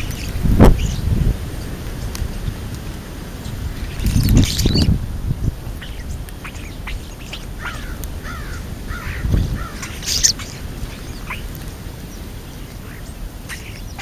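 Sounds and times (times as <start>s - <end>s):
starling calls and chirps: 0.0s - 2.7s, 3.3s - 14.0s
bird wingbeats fluttering: 5.6s - 14.0s.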